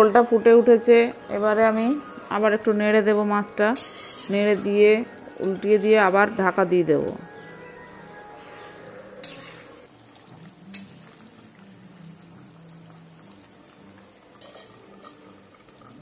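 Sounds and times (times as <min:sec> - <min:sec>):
curry boiling in pan: 0:01.0 - 0:06.4, 0:07.2 - 0:16.0
spatula clinking against pan: 0:03.8 - 0:04.7
spatula stirring: 0:03.8 - 0:06.1, 0:08.4 - 0:09.9.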